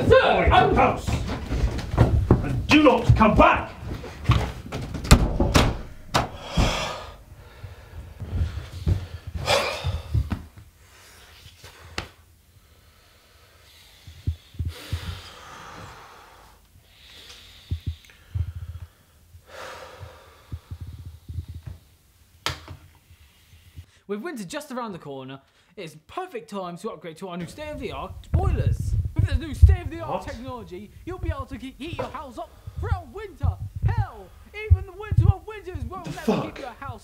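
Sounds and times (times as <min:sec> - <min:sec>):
dull low thuds: 0:00.0 - 0:10.6, 0:17.7 - 0:18.8, 0:27.5 - 0:36.2
man breathing heavily: 0:05.8 - 0:21.9, 0:32.4 - 0:34.7.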